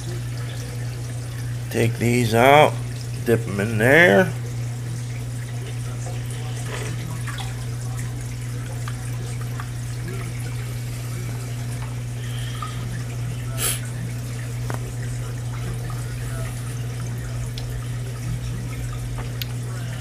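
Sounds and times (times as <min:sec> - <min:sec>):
steady low hum: 0:00.0 - 0:20.0
water trickling and dripping: 0:00.0 - 0:20.0
small splashes in water container: 0:05.4 - 0:19.6.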